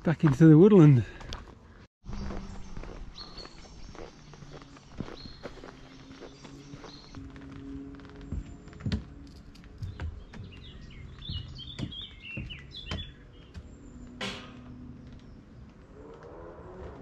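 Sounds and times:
footsteps on woodland path: 0:00.0 - 0:14.1, 0:14.9 - 0:17.0
bird chirping: 0:02.1 - 0:07.2, 0:09.5 - 0:15.8.

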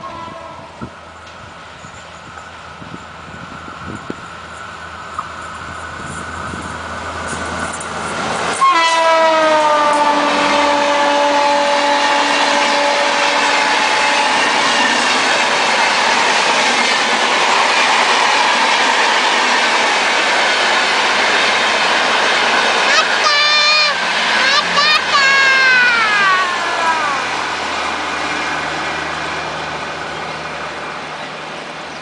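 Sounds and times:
train horn blast: 0:00.0 - 0:00.8, 0:08.6 - 0:15.0
diesel locomotive passing: 0:00.0 - 0:32.0
train coaches rumbling on rails: 0:00.0 - 0:32.0.

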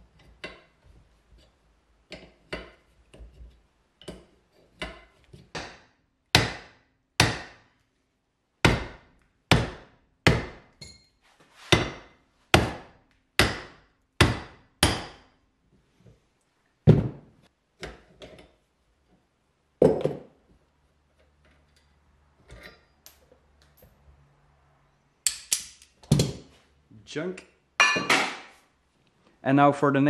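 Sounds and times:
metal clinks: 0:10.8 - 0:11.2.

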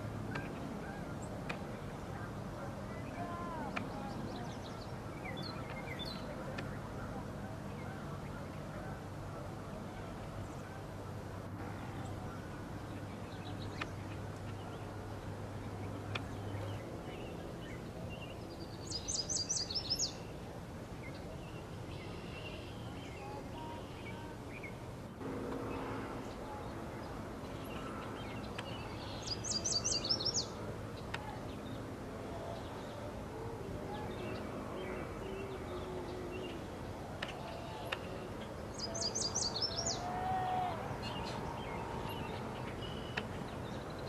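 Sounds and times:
outdoor background noise: 0:00.0 - 0:44.0
songbirds chirping: 0:00.0 - 0:44.0.

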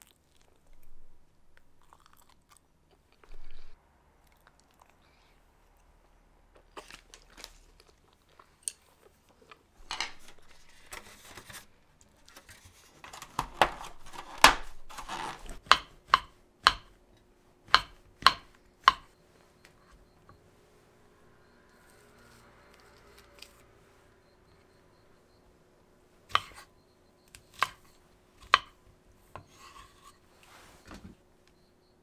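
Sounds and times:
plastic crinkling and rattling: 0:09.3 - 0:15.6.

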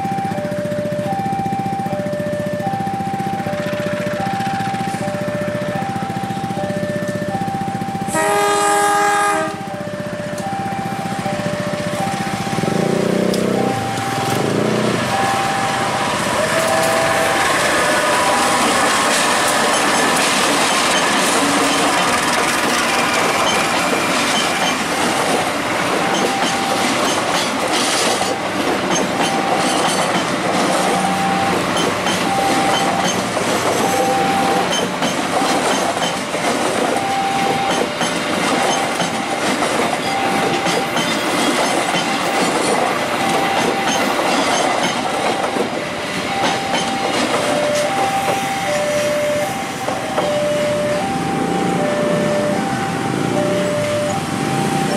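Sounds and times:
level-crossing warning tone: 0:00.0 - 0:54.9
low horn-like tone: 0:08.1 - 0:09.7
train wheels clattering over rail joints: 0:16.2 - 0:48.5.

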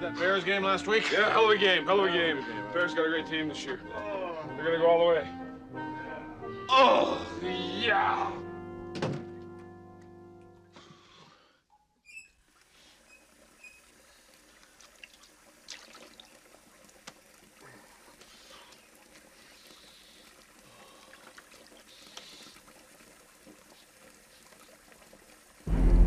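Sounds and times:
water splashes and drips: 0:12.4 - 0:25.7
water trickling from tap: 0:12.5 - 0:25.7.

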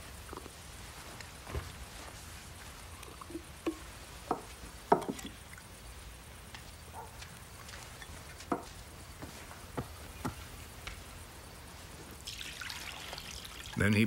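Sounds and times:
water dripping and splashing: 0:02.5 - 0:06.6, 0:12.2 - 0:13.9.

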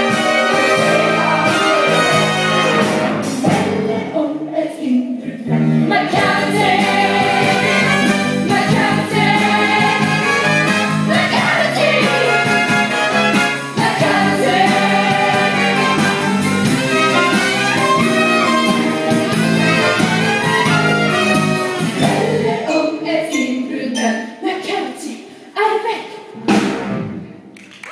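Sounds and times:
live band music with driving beat: 0:00.0 - 0:04.0, 0:05.7 - 0:22.6, 0:26.4 - 0:27.3.

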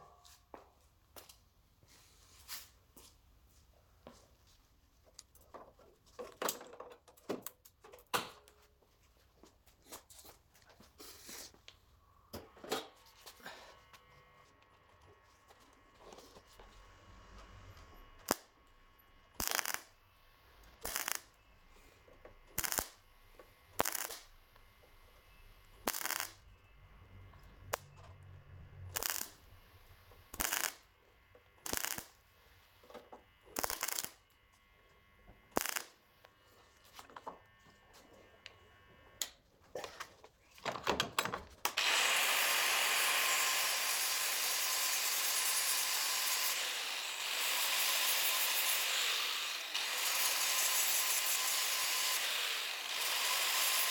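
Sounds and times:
mig welder tack welds: 0:16.5 - 0:37.5, 0:41.6 - 0:53.9
angle grinder grinding: 0:20.6 - 0:30.8, 0:41.7 - 0:53.9.

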